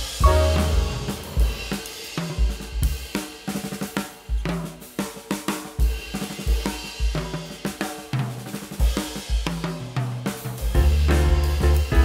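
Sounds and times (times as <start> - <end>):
drum kit beat: 0.0 - 12.0
bass line: 0.2 - 1.8, 10.8 - 12.0.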